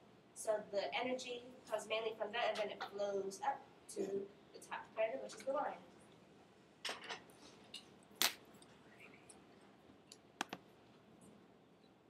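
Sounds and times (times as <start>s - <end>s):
computer clicks: 10.1s - 10.6s.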